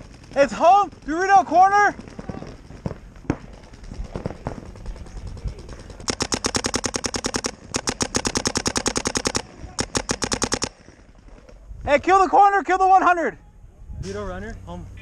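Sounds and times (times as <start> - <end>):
paintball marker firing: 2.0 - 11.6.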